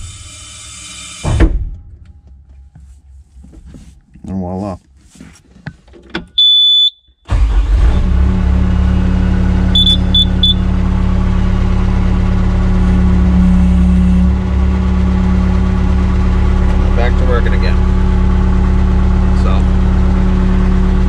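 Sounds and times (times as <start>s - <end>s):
diesel engine running: 7.3s - 21.0s
electronic beeps: 9.8s - 10.6s.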